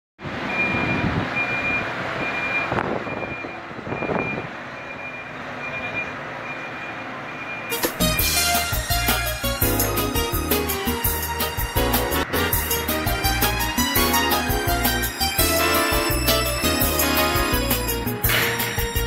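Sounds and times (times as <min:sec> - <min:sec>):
diesel engine running: 0:00.2 - 0:19.0
reversing alarm beeping: 0:00.5 - 0:08.3
music: 0:07.7 - 0:19.0.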